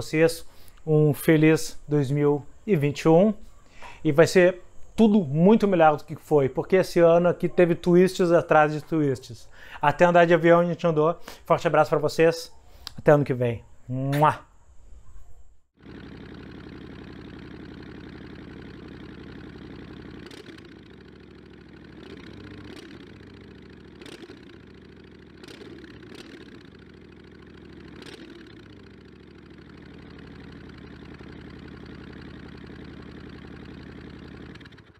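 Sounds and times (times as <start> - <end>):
engine idling: 15.8 - 34.9
sharp clicks: 25.4 - 26.5.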